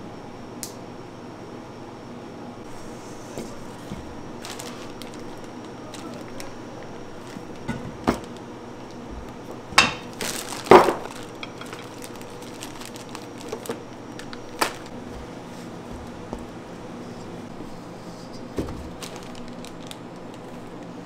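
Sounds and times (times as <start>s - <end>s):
low room hum: 0.0s - 21.0s
utensils clattering: 9.8s - 14.9s.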